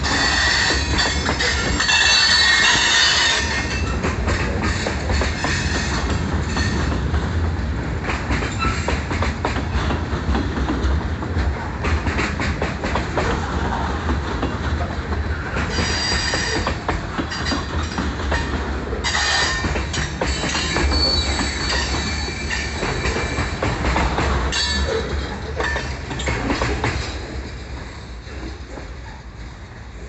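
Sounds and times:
train rumble: 0.0s - 30.0s
train wheels clicking over rail joints: 0.0s - 30.0s
high wheel squeals: 20.4s - 23.2s.

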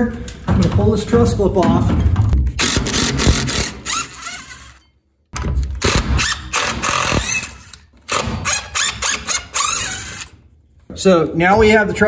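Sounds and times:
impact driver hammering: 2.4s - 4.4s, 5.4s - 10.0s.

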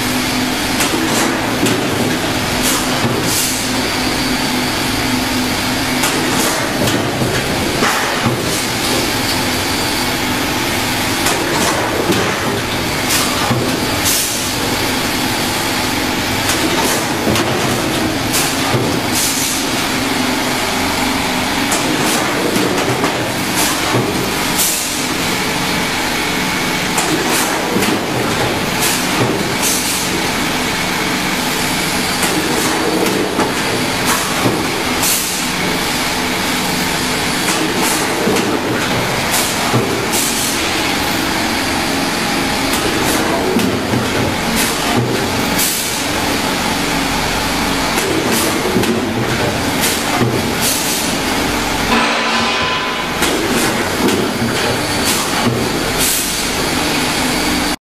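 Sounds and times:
machine knocks and clatters: 0.6s - 3.9s, 6.0s - 9.6s, 11.0s - 15.0s, 16.2s - 25.5s, 26.8s - 30.4s, 31.8s - 56.5s.

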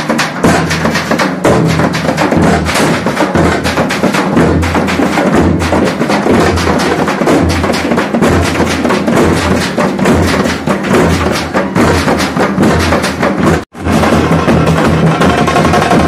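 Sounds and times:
percussion-heavy procession music: 0.0s - 16.0s.

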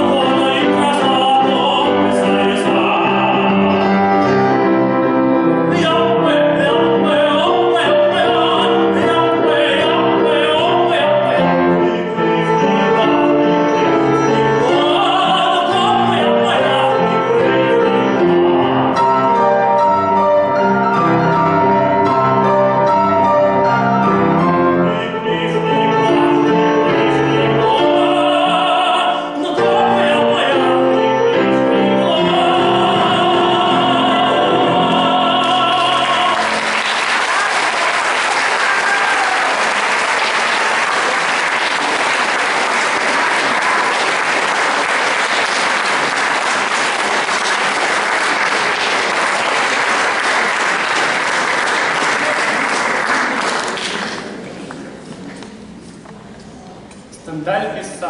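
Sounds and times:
piano accompaniment: 0.0s - 58.0s
woman singing opera: 31.8s - 36.6s
applause: 35.9s - 54.5s.

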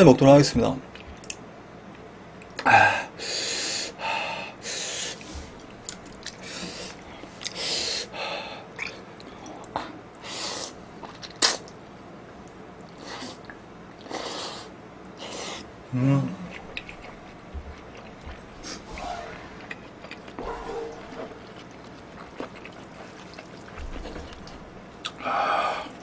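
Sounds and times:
man chewing: 4.5s - 26.0s
short vocal sound: 15.9s - 16.5s.

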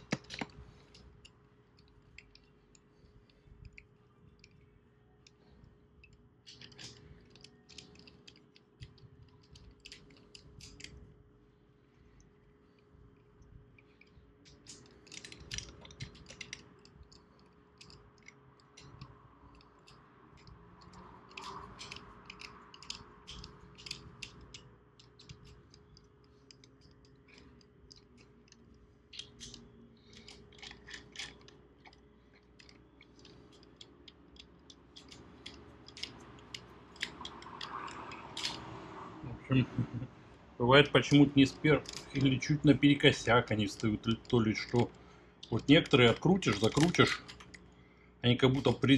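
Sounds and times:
metallic clicks from hand tools: 43.4s - 47.6s.

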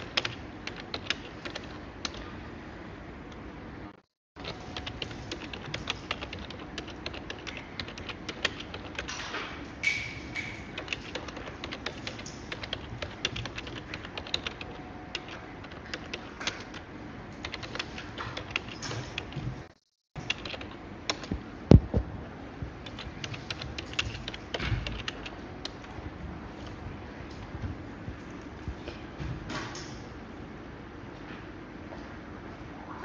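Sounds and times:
keyboard typing: 0.0s - 2.3s, 4.4s - 22.0s, 22.8s - 26.0s.

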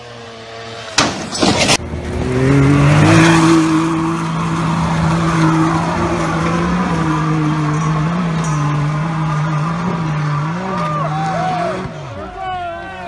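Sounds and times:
off-road engine revving hard: 0.0s - 12.4s
loud crash: 0.9s - 1.9s.

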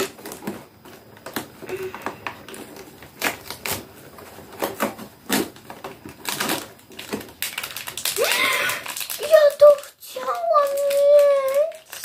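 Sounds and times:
packaging torn and crinkled: 2.4s - 12.0s.

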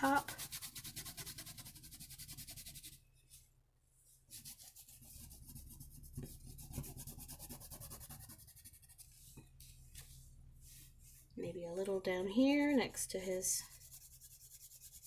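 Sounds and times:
crayon scratching on paper: 0.0s - 3.0s, 4.3s - 9.3s, 13.6s - 15.0s.

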